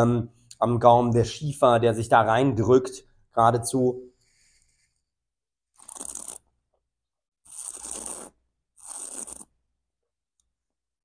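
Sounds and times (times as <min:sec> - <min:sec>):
wine taster slurping: 0:05.8 - 0:06.5, 0:07.5 - 0:09.5.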